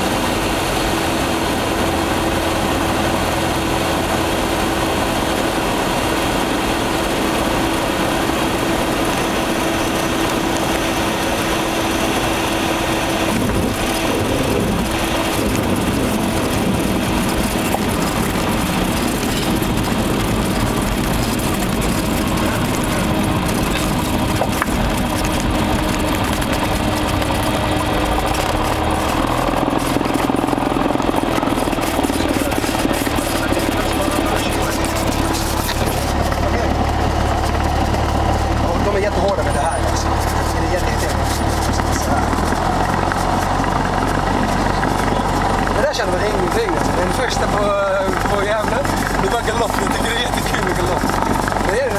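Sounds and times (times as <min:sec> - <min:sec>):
propeller plane engine drone: 0:00.0 - 0:51.9.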